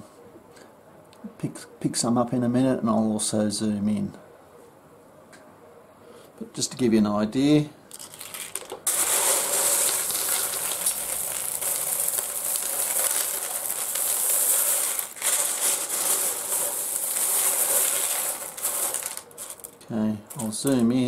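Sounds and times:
stone chips clattering: 7.9 - 20.9.

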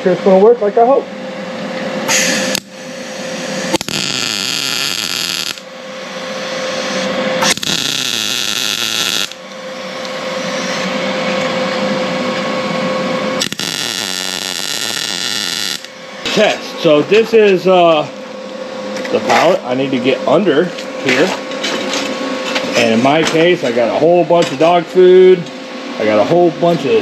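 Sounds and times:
welder hum: 1.0 - 21.5
welding arc crackling: 2.1 - 9.4, 13.4 - 16.0.

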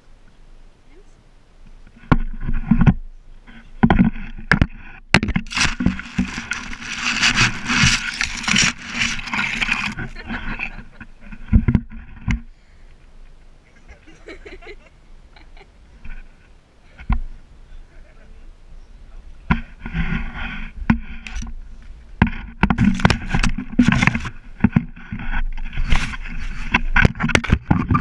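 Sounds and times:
grass rustling against microphone: 0.0 - 28.0
camera handling knocks and thumps: 3.8 - 10.1, 22.2 - 25.4.

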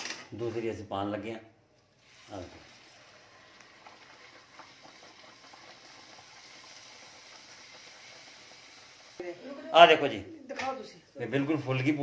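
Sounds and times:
bread deep-frying in oil: 2.0 - 9.2.

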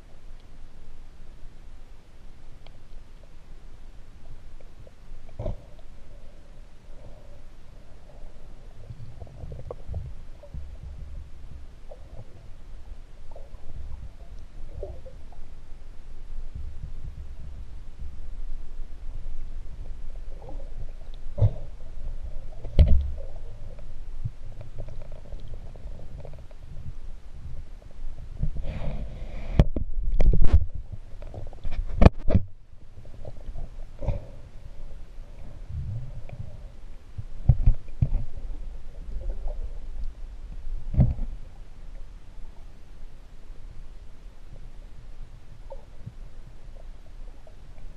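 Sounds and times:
muffled underwater water rumble: 0.0 - 47.9
dull underwater thumps: 9.5 - 12.2, 22.6 - 23.3.

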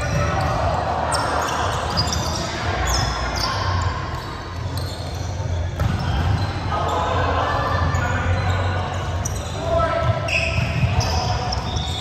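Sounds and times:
players' voices: 0.0 - 12.0
shoe squeaks: 1.1 - 7.1, 7.9 - 12.0.

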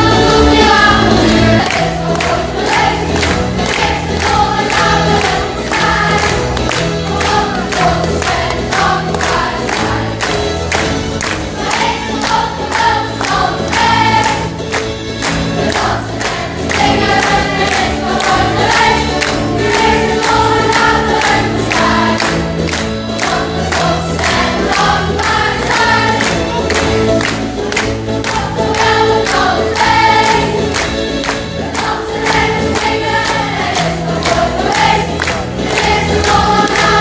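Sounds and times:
children singing in chorus: 0.0 - 10.2, 11.6 - 14.5, 15.6 - 22.4, 28.3 - 30.7, 31.6 - 37.0.

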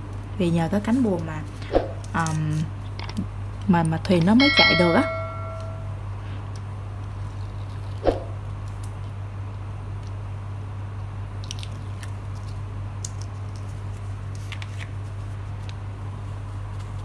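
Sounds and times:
steady low hum: 0.0 - 17.0
adhesive film crackling: 11.4 - 17.0.

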